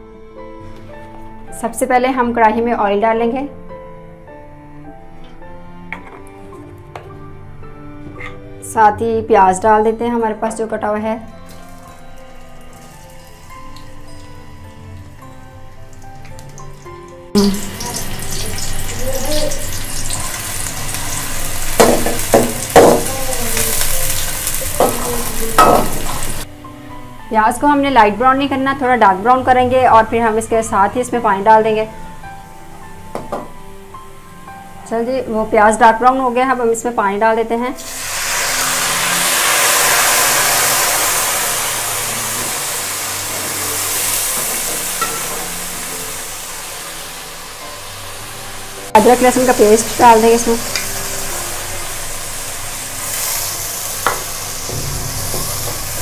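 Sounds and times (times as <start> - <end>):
onions sizzling in hot oil: 11.5 - 26.5, 37.8 - 56.0.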